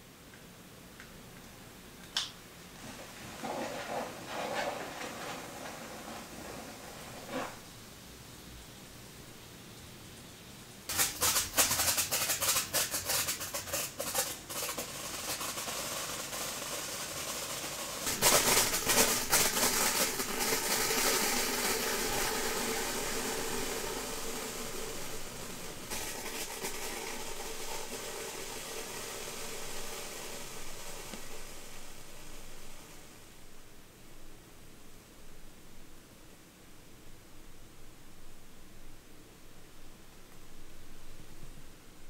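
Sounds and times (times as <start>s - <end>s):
sparkler crackling and hissing: 2.8s - 8.1s, 10.9s - 33.6s.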